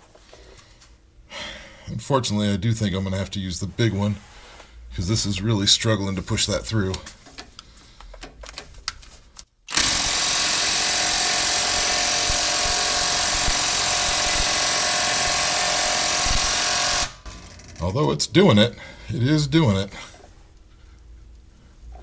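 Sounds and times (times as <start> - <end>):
impact wrench hammering: 9.7 - 17.8.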